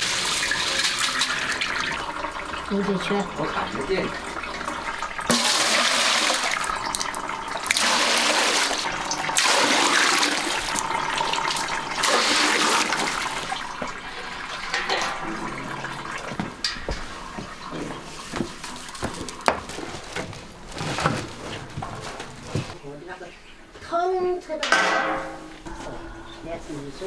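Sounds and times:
water poured into steel bucket: 0.0s - 19.4s.

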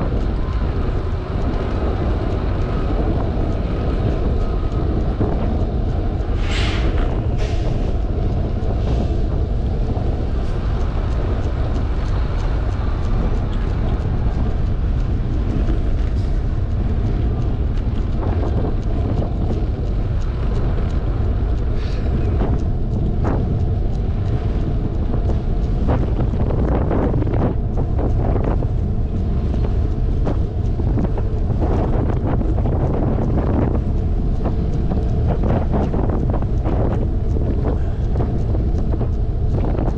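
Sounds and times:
bicycle road rumble: 0.0s - 39.9s
wind rushing over microphone: 0.0s - 39.9s.

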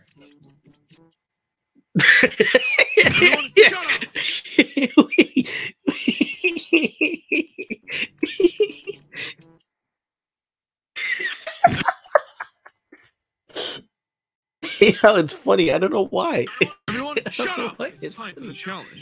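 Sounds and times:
person laughing: 2.0s - 9.4s, 11.0s - 12.7s, 16.4s - 17.8s
music: 16.9s - 19.0s.

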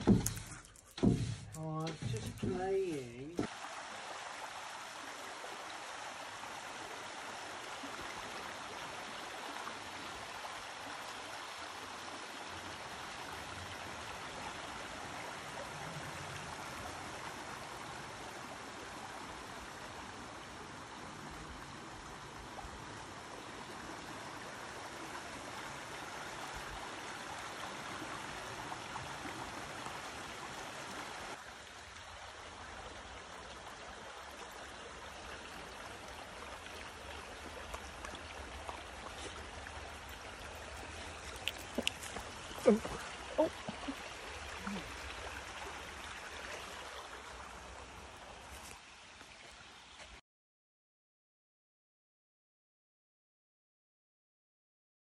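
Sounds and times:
stream rushing over stones: 1.0s - 50.2s.

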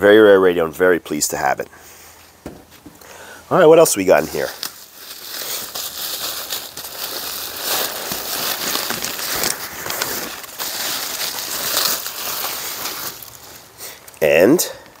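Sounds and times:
plastic packing wrap crinkling: 3.9s - 14.2s.

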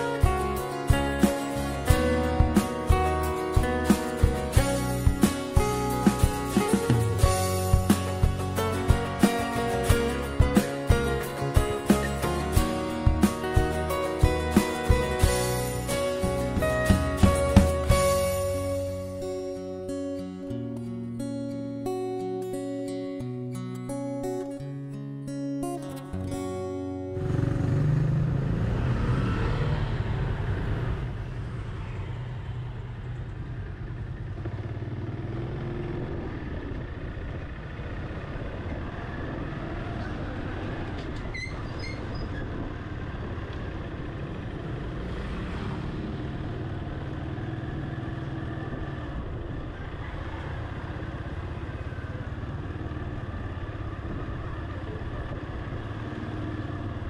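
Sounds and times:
low hum of traffic engines: 26.5s - 57.0s
motorcycles riding past: 27.1s - 41.2s, 42.0s - 57.0s.

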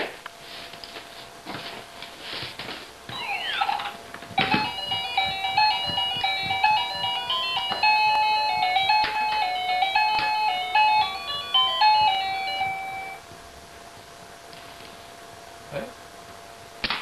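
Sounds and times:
electronic toy beeping melody: 3.1s - 13.2s.

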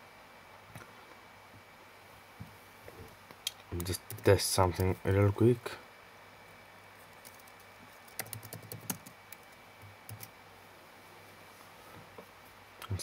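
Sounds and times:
laptop keyboard typing: 3.8s - 5.0s, 7.2s - 10.3s.

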